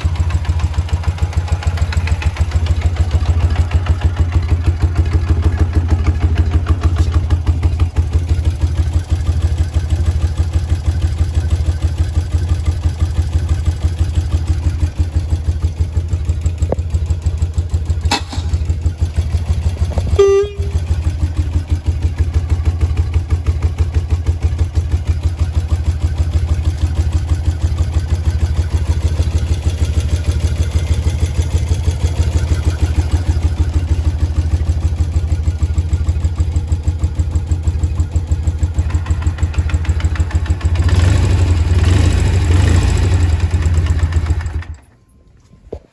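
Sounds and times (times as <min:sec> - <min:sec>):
motorcycle engine idling: 0:00.0 - 0:45.0
short horn beep: 0:20.1 - 0:21.1.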